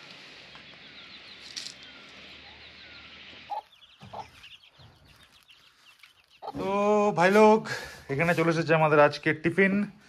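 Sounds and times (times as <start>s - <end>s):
small bird chirps: 0.0s - 7.4s
hen clucking: 0.6s - 7.6s.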